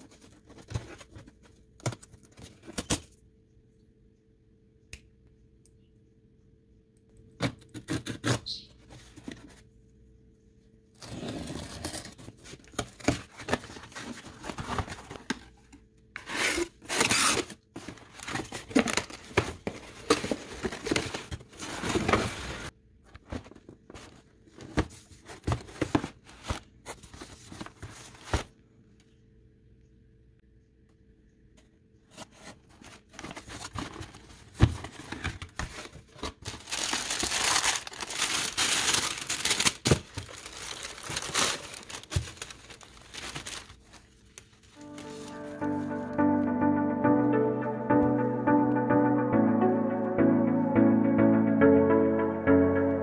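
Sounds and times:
cardboard box rustling: 0.0 - 1.5, 11.0 - 15.6, 17.0 - 28.5, 32.1 - 44.1
tape and cardboard tearing: 16.2 - 17.6.

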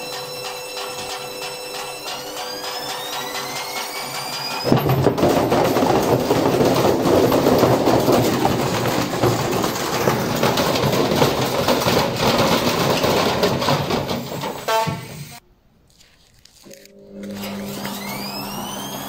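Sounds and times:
washing machine motor whining: 0.0 - 15.4, 16.9 - 19.0
brick banging in drum: 0.8 - 15.2.

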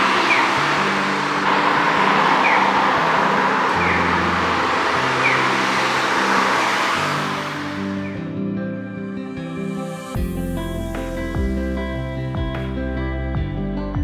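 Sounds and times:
city street traffic: 0.0 - 10.0
background music bass notes: 0.0 - 14.0.

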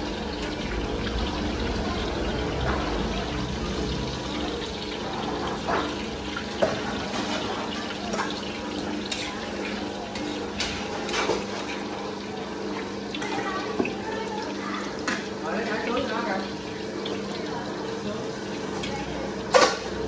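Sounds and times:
oil sizzling in woks: 0.0 - 20.0
metal utensils clinking against woks: 7.2 - 11.8.

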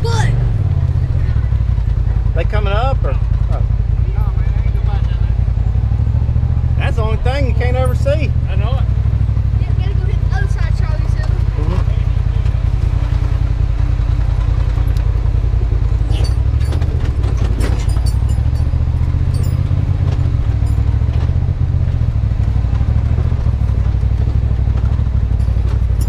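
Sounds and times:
engine running at low revs: 0.0 - 26.0
chassis knocking and rattling: 10.4 - 26.0.

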